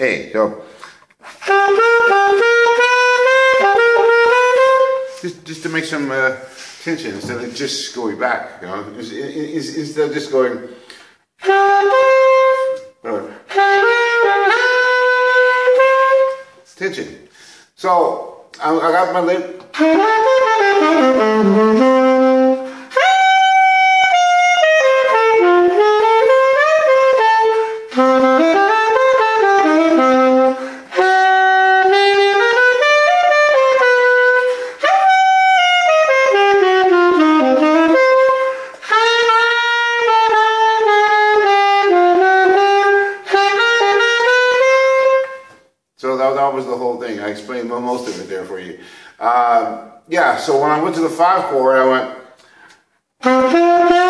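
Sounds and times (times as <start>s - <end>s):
saxophone playing blues: 0.0s - 16.8s, 17.9s - 45.8s, 51.6s - 54.0s
saxophonist breaths: 6.4s - 6.9s, 17.3s - 17.8s, 48.8s - 49.2s, 52.4s - 53.0s.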